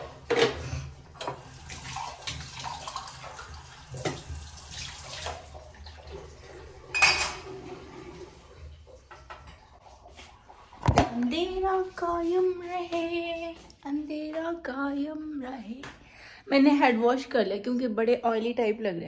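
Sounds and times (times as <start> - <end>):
dishes and utensils clinking: 0.0 - 1.5, 6.8 - 8.0, 9.0 - 10.2.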